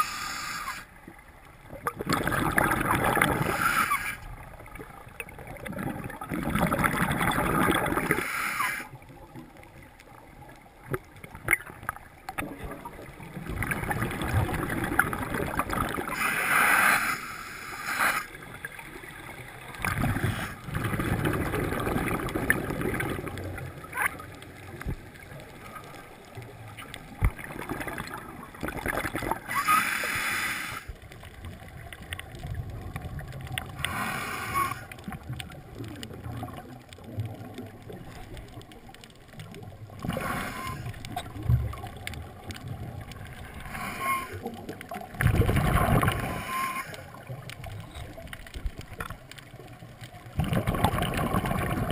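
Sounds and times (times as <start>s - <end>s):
diver breathing through regulator: 0.0s - 0.9s, 29.5s - 30.9s, 33.8s - 34.9s, 40.0s - 41.0s, 43.6s - 44.5s, 46.1s - 47.2s
bubbling exhalation: 1.8s - 3.7s, 5.4s - 8.2s, 19.8s - 23.5s, 27.4s - 29.6s, 43.5s - 47.4s, 50.4s - 51.9s.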